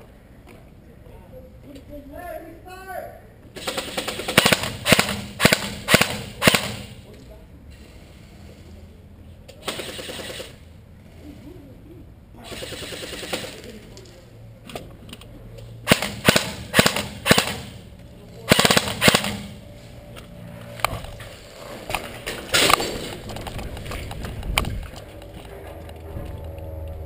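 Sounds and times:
airsoft guns firing bursts: 3.6 - 7.1, 9.6 - 10.6, 12.4 - 13.8, 15.8 - 17.8, 18.5 - 19.6.

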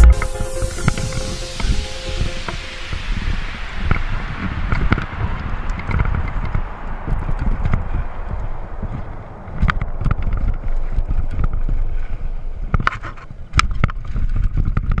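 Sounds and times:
wind on microphone: 0.0 - 15.0
bike rattling over bumps: 7.2 - 15.0.

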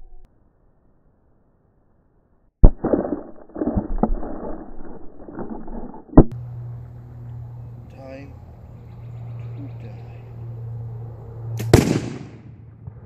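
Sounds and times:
rough crackling noise: 2.6 - 6.4
low steady hum: 4.0 - 12.0.

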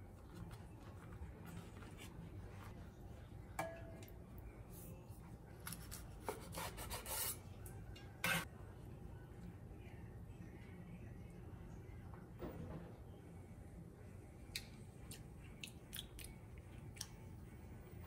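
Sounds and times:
knife scraping through vegetables: 5.7 - 7.4.

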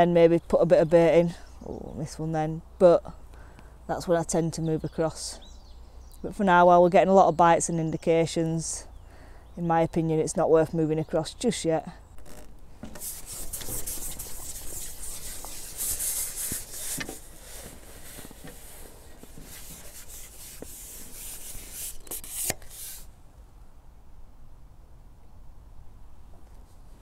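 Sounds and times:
fishing pole scraping: 12.2 - 23.1.

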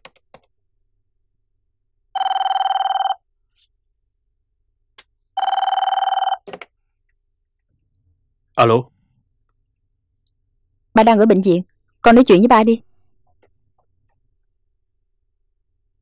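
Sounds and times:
telephone ringing: 2.2 - 3.2, 5.4 - 6.5.

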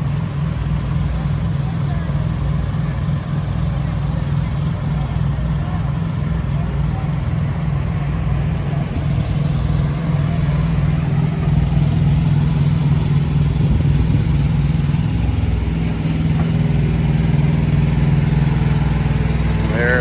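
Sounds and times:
diesel truck engine idling: 0.0 - 20.0.

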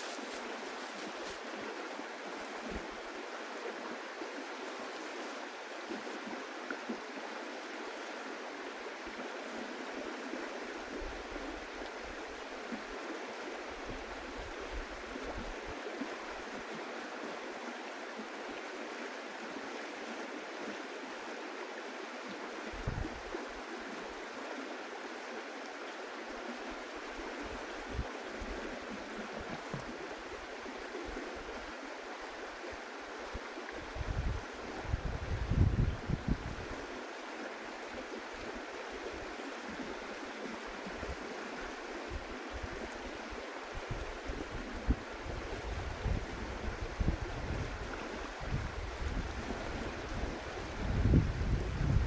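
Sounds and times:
river water rushing: 0.0 - 52.0.

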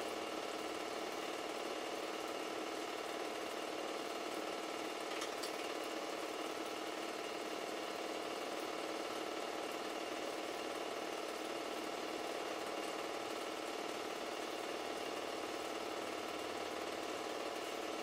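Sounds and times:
film projector whirring: 0.0 - 18.0
film transport clatter: 5.0 - 5.8.

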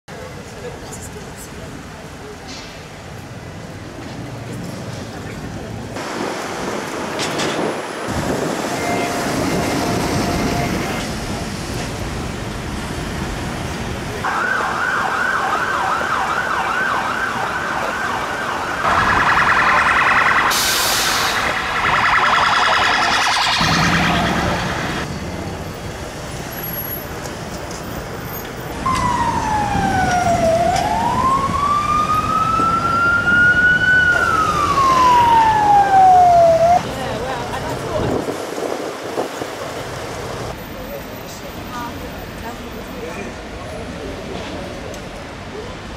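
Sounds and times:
street traffic: 0.1 - 45.9
wailing siren: 14.2 - 25.1, 28.9 - 36.8
warbling siren: 14.2 - 25.1, 28.9 - 36.8
yelping siren: 14.3 - 25.0, 28.9 - 36.8.

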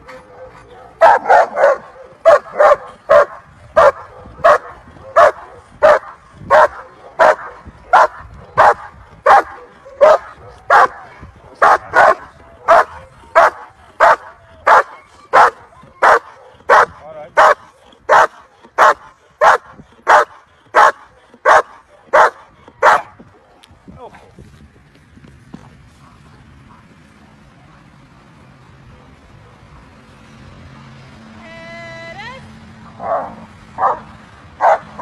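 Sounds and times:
dog barking sharply: 0.1 - 4.6.

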